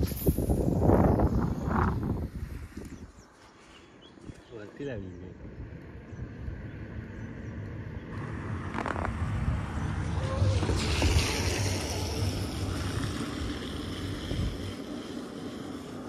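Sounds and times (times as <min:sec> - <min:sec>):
rushing hiss: 0:00.0 - 0:02.8, 0:10.1 - 0:16.0
wind buffeting microphone: 0:00.0 - 0:03.4, 0:04.0 - 0:16.0.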